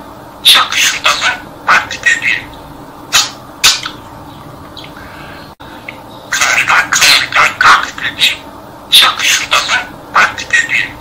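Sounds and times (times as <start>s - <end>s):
budgerigar mimicking speech: 0.4s - 4.0s, 6.3s - 11.0s.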